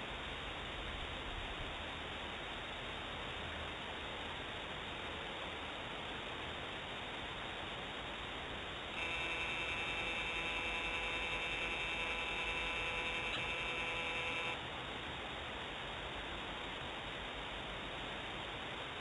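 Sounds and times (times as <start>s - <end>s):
constant hiss: 0.0s - 19.0s
camera motor whine: 9.0s - 14.6s.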